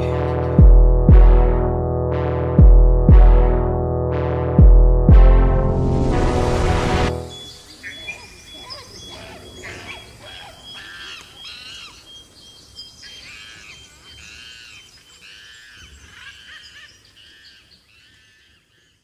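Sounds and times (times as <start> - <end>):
chirping animal calls: 7.4 - 12.4.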